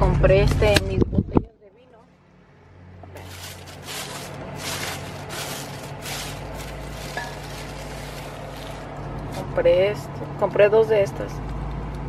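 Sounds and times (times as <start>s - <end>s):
low steady hum: 0.0s - 12.0s
plastic bag rustling: 3.1s - 9.6s.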